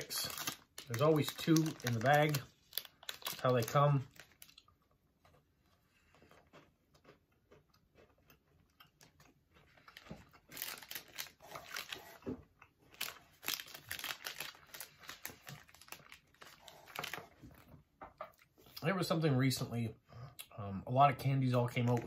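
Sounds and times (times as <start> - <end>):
chocolate biscuit crunching: 0.0 - 5.4.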